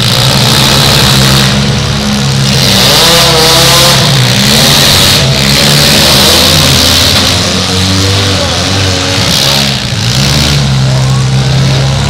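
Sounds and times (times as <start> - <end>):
car engines revving: 0.0 - 12.0.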